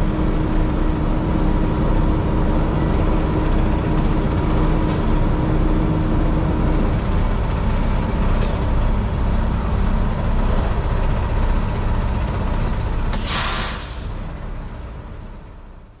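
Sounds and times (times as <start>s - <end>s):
diesel truck engine rumbling: 0.0s - 16.0s
air brakes hissing: 13.1s - 14.2s.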